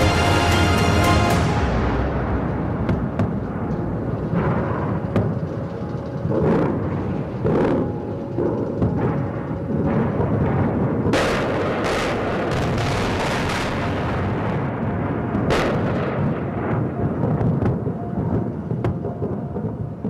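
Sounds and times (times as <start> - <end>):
loud explosion blasts: 0.0 - 5.3
low battle rumble: 0.0 - 15.7
gunfire: 11.1 - 14.0.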